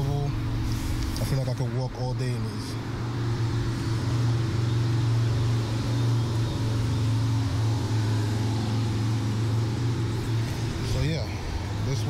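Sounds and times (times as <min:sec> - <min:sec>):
road traffic hum: 0:00.0 - 0:12.0.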